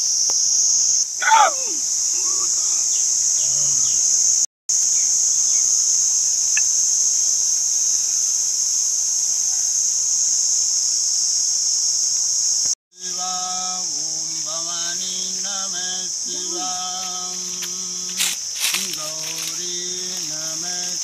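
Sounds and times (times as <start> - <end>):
insects chirping: 0.0 - 21.0
man chanting: 1.2 - 4.1, 12.9 - 21.0.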